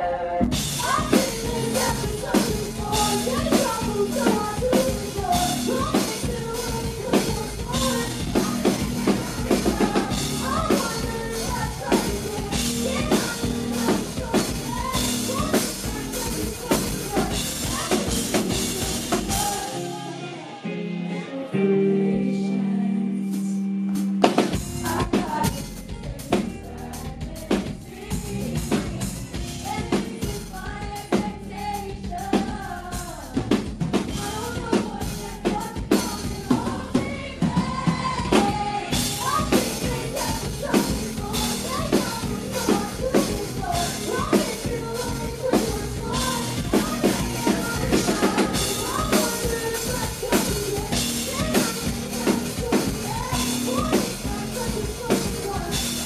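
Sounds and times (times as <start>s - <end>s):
woman singing into microphone: 0.0s - 23.8s, 24.4s - 56.0s
electric guitars: 0.0s - 31.7s
drum kit pounding: 0.4s - 20.4s, 23.4s - 56.0s.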